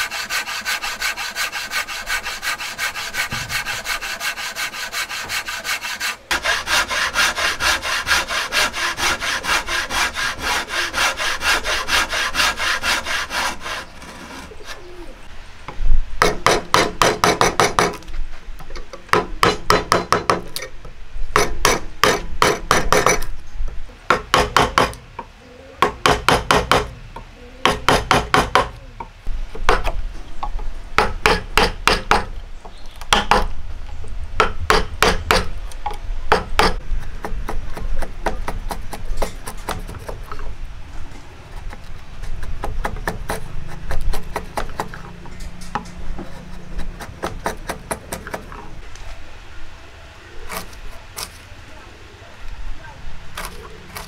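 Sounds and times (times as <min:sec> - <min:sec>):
chisel scraping wood: 0:00.0 - 0:15.0, 0:45.8 - 0:48.7.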